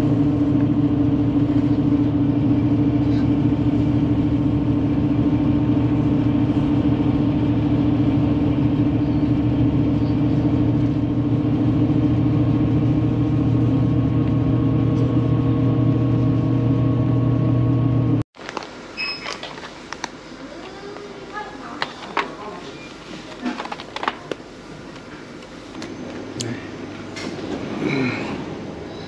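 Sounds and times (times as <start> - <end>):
vehicle engine hum: 0.0 - 18.2.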